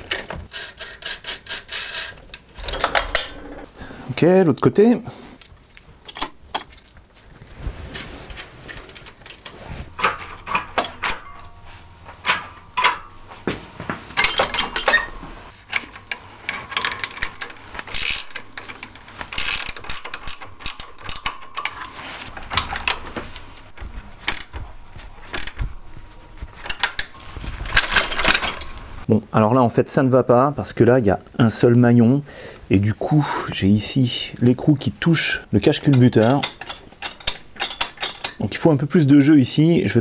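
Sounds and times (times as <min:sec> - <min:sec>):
chain links and washers clinking: 0:01.4 - 0:03.6, 0:08.3 - 0:11.6, 0:14.2 - 0:15.3, 0:26.7 - 0:28.9, 0:36.1 - 0:38.4
ratcheting wrench clicking: 0:16.5 - 0:21.8, 0:24.3 - 0:24.5, 0:25.3 - 0:25.6.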